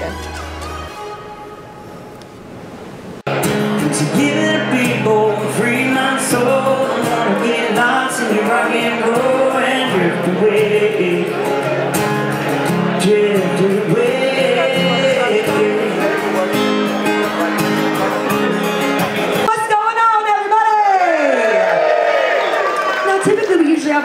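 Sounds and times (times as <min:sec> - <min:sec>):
acoustic guitar strumming: 0:03.3 - 0:20.0
man singing: 0:03.7 - 0:11.9, 0:12.7 - 0:16.7.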